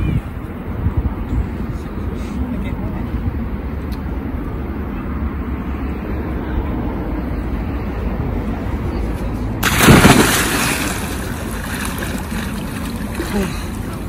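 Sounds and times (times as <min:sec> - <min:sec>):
body splashing into water: 0:09.6 - 0:13.9.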